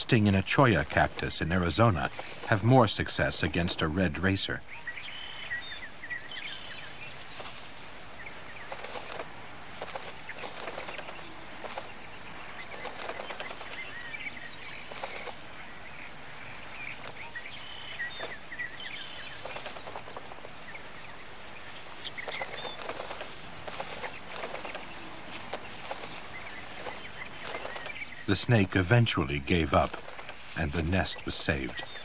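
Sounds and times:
bird chirping calls: 0:00.0 - 0:32.0
bird wings flapping and rustling: 0:01.7 - 0:02.7, 0:07.1 - 0:15.7, 0:16.5 - 0:28.3, 0:29.7 - 0:32.0.

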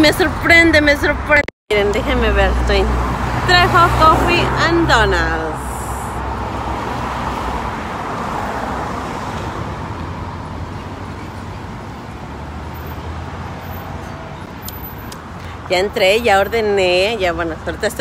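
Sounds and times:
street traffic noise: 0:00.0 - 0:18.0
vehicle passing: 0:00.3 - 0:14.6.

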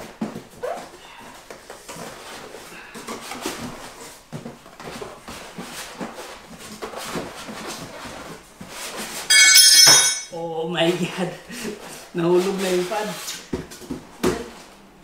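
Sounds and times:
cardboard box rustling and scraping: 0:00.2 - 0:09.3.

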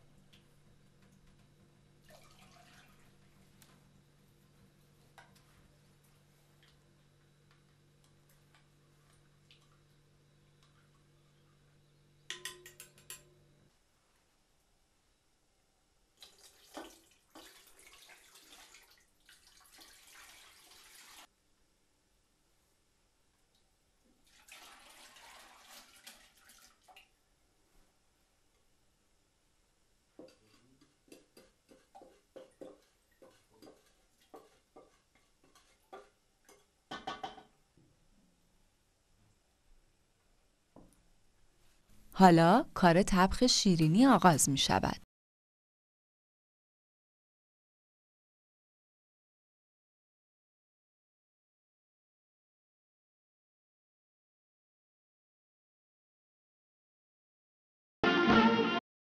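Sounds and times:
liquid pouring into pot: 0:02.0 - 0:03.4, 0:16.2 - 0:21.3, 0:24.2 - 0:27.2
utensil tapping in glass bowl: 0:12.3 - 0:13.3, 0:30.2 - 0:37.5.

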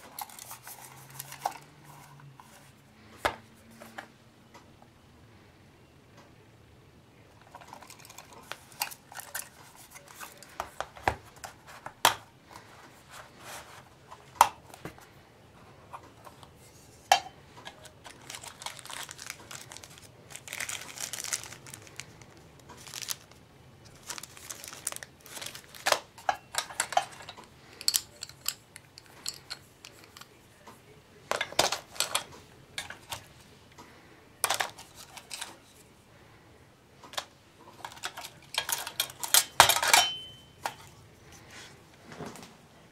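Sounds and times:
plastic bag crinkling: 0:17.6 - 0:30.2
hard items clicking and knocking: 0:24.1 - 0:30.4, 0:31.3 - 0:35.6, 0:37.1 - 0:41.0.

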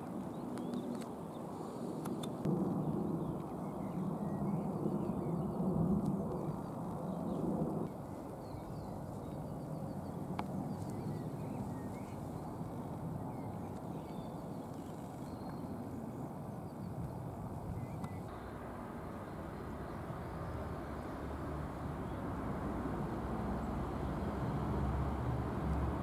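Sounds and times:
small birds chirping: 0:00.1 - 0:02.5, 0:03.1 - 0:26.0
locomotives rumbling: 0:17.9 - 0:26.0.

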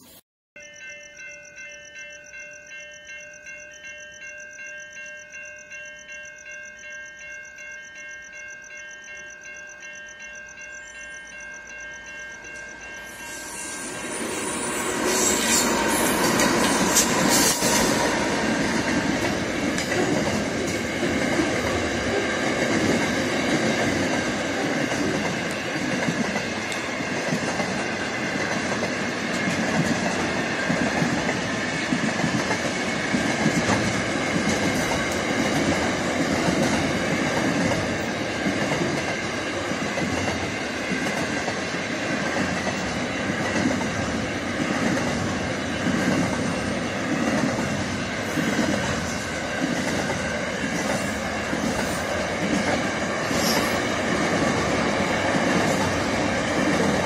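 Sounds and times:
high ring from wheels: 0:00.1 - 0:30.8
train wheels rumbling on rails: 0:11.3 - 0:57.0.

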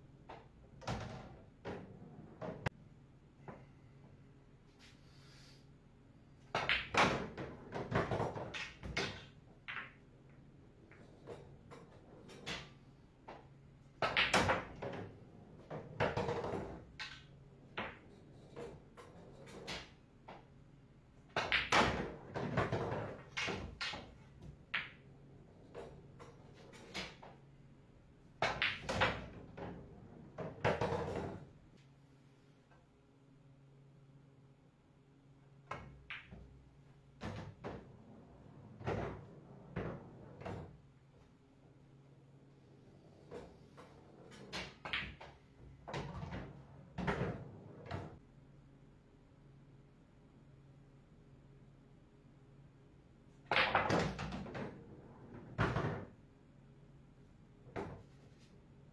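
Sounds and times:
pool balls clacking: 0:00.2 - 0:02.7, 0:06.5 - 0:20.5, 0:21.3 - 0:27.4, 0:28.4 - 0:31.5, 0:35.7 - 0:40.8, 0:42.9 - 0:48.2, 0:53.5 - 0:56.2.

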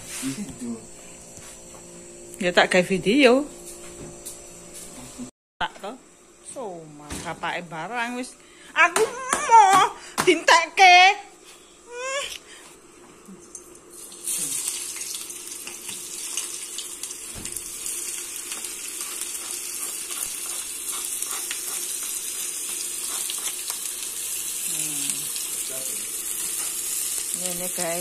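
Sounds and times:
food sizzling in hot oil: 0:13.4 - 0:28.0.

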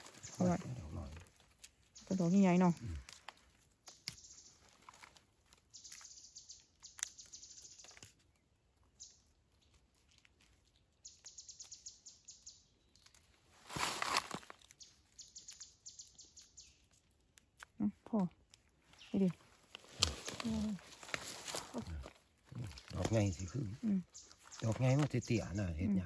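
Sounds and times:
crunching rustle: 0:00.0 - 0:25.6
high-pitched chirping trills: 0:03.9 - 0:04.7, 0:05.7 - 0:08.0.

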